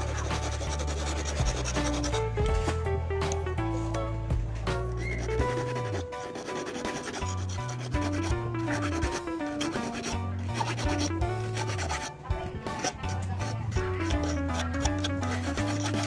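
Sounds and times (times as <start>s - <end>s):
file rasping on steel wire: 0.0s - 2.7s, 4.9s - 16.0s
background music with bass line: 0.0s - 6.2s.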